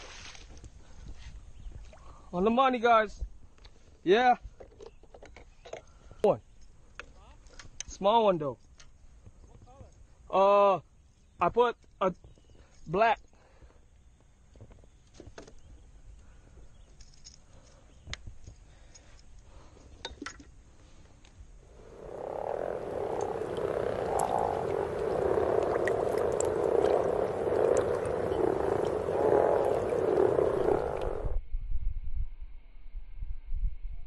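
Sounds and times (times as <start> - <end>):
frogs croaking: 21.4 - 31.4.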